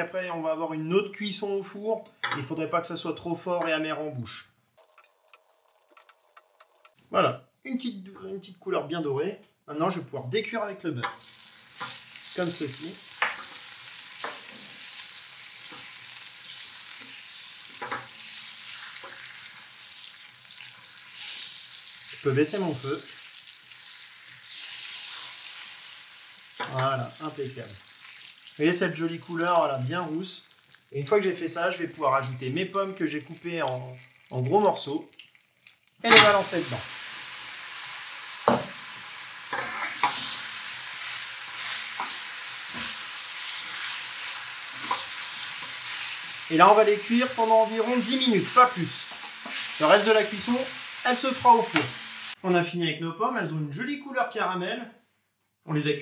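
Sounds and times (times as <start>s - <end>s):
spoon scraping a pan: 11.0s - 12.3s, 15.6s - 19.5s, 36.1s - 36.6s, 39.5s - 46.4s, 49.1s - 49.8s
butter sizzling in a frying pan: 11.0s - 52.4s.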